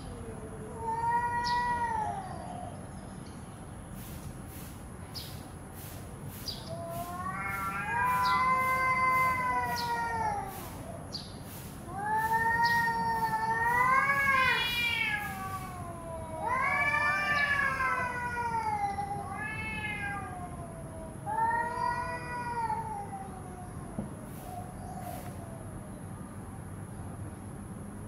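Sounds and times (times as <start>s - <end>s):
cats yowling: 0.0s - 2.9s, 6.6s - 11.2s, 11.8s - 25.8s.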